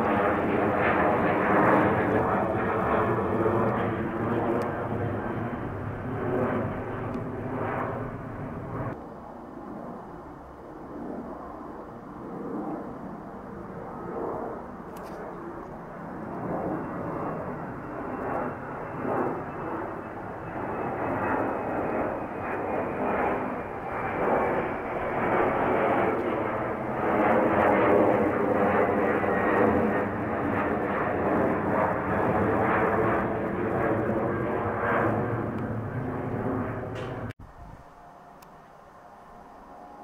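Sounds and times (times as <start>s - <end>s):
jet engine roar: 0.0s - 40.0s
faint high whine: 36.6s - 40.0s.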